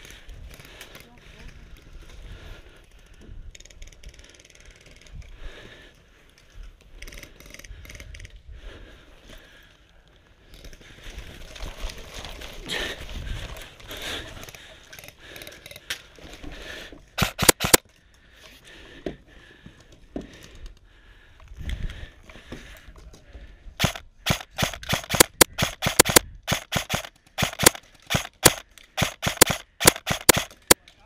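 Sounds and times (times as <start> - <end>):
airsoft rifle shots: 17.2 - 17.8, 23.8 - 30.8.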